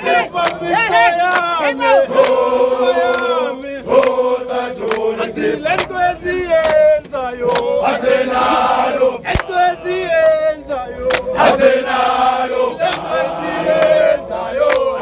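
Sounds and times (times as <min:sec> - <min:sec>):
men singing in chorus: 0:00.0 - 0:15.0
hand claps: 0:00.4 - 0:00.6, 0:01.3 - 0:01.5, 0:03.0 - 0:03.4, 0:04.0 - 0:04.2, 0:04.8 - 0:05.1, 0:05.7 - 0:06.0, 0:06.6 - 0:07.7, 0:09.3 - 0:09.6, 0:11.0 - 0:11.3, 0:11.9 - 0:12.2, 0:12.8 - 0:13.1, 0:13.8 - 0:14.0, 0:14.6 - 0:14.9.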